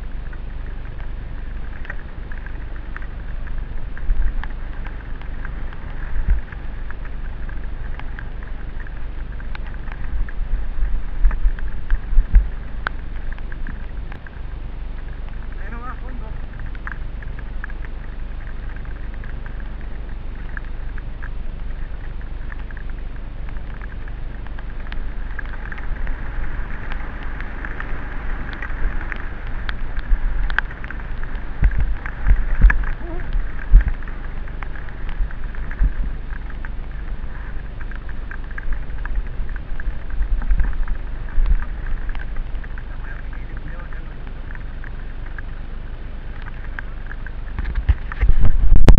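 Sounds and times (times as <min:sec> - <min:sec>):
wind rush: 0:00.0 - 0:45.9, 0:46.8 - 0:48.9
bike tyres on wet ground: 0:00.0 - 0:48.9.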